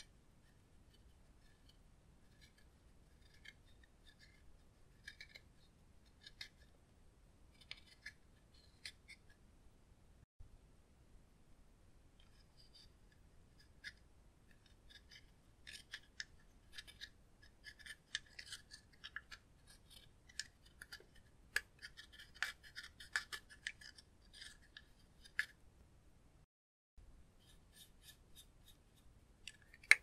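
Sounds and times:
plastic tool scraping powder: 0.0s - 6.8s, 12.2s - 25.6s.

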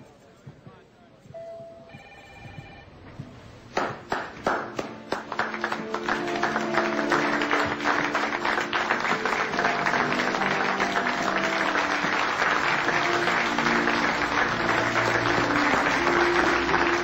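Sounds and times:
short electronic ringing tone: 1.4s - 2.9s
small group applauding: 3.8s - 17.0s
music with long held notes: 4.4s - 17.0s.

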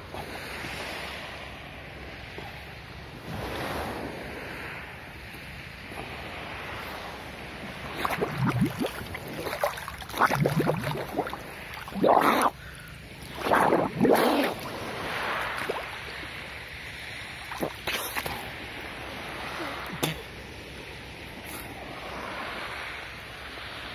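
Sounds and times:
small waves washing: 0.0s - 23.9s
water splashing from swimming: 7.6s - 20.3s.

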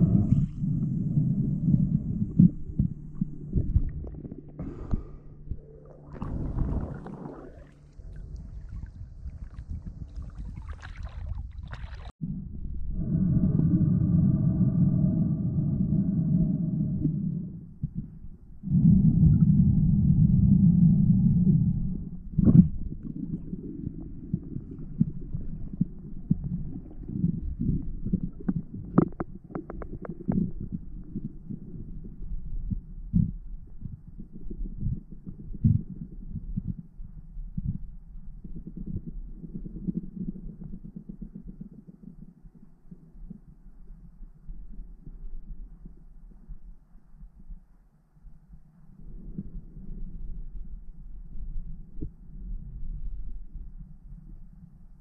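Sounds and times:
underwater rushing noise: 0.0s - 12.1s
faint steady hum: 0.0s - 55.0s
muffled underwater rumble: 0.0s - 55.0s.

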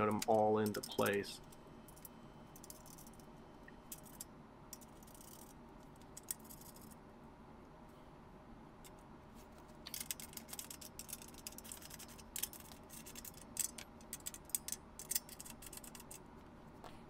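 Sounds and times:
metallic clicks of bolts: 0.1s - 1.2s.

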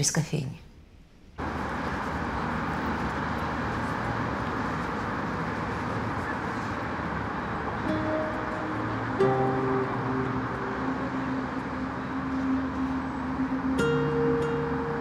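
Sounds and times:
traffic hum: 0.0s - 15.0s.

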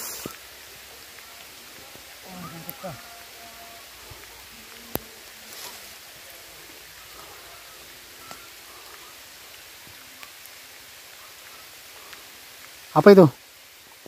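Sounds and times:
rain on foliage: 0.0s - 14.0s
faint ticks: 4.1s - 5.8s.

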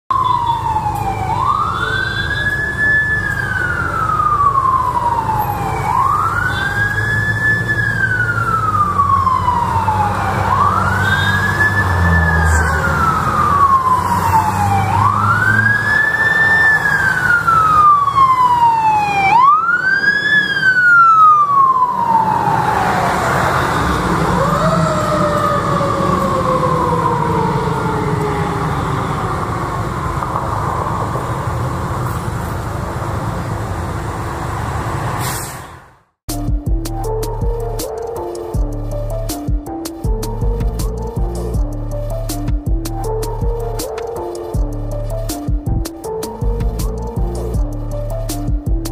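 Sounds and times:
fire engine siren wailing: 0.1s - 35.3s
traffic: 0.1s - 48.9s
truck engine rumble: 0.2s - 48.9s.

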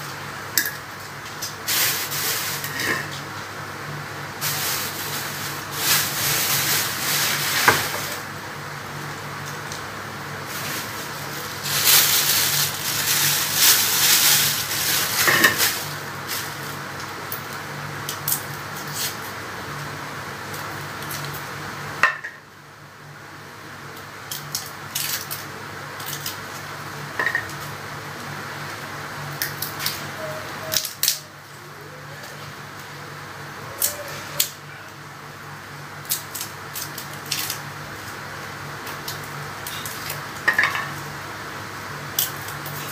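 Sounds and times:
plastic bag crinkling: 4.4s - 8.2s, 10.4s - 16.8s.

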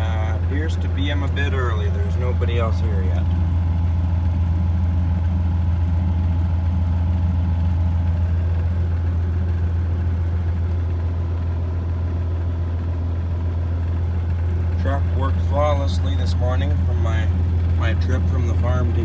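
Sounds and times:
diesel truck engine idling: 0.0s - 19.0s.

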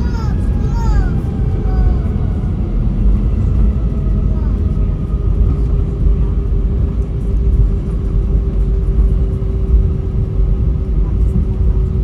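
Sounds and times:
airliner engine rumble: 0.0s - 12.0s.

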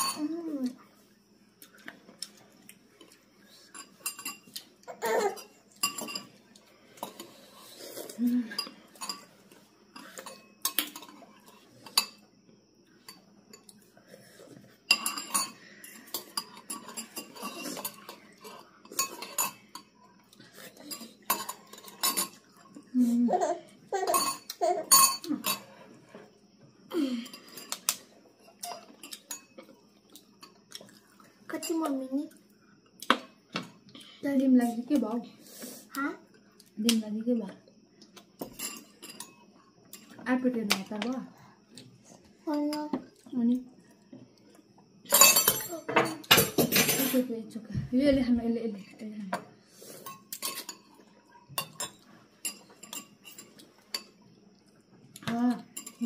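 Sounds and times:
spoons clinking against bowls: 0.0s - 0.4s, 3.7s - 6.4s, 8.5s - 9.4s, 10.0s - 12.2s, 14.9s - 20.0s, 20.8s - 22.6s, 23.4s - 25.8s, 28.6s - 29.7s, 38.4s - 40.1s, 45.1s - 47.2s, 50.0s - 54.2s, 55.7s - 56.0s.

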